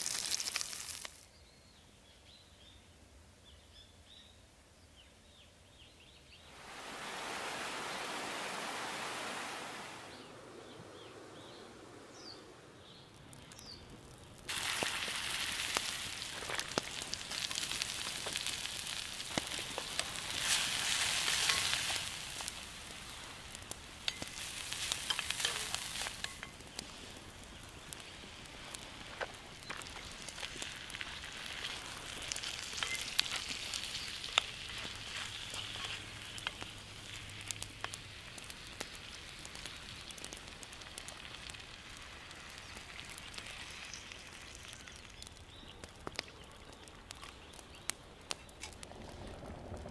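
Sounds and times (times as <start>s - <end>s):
vegetables sizzling in hot oil: 0.0s - 1.2s, 14.5s - 45.6s
crackling pops: 0.0s - 1.3s, 12.8s - 49.9s
soft rushing hiss: 6.4s - 44.5s.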